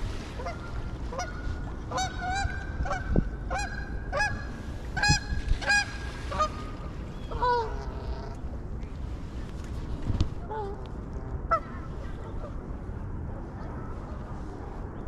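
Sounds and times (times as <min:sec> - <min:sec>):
geese honking: 0:00.4 - 0:08.4.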